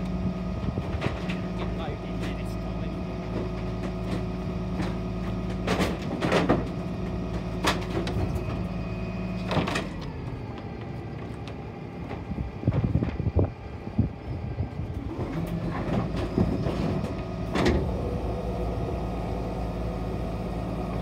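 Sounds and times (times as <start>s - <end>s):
diesel truck engine running: 0.0s - 21.0s
wooden slats clattering and cracking: 0.9s - 2.4s, 3.2s - 8.6s.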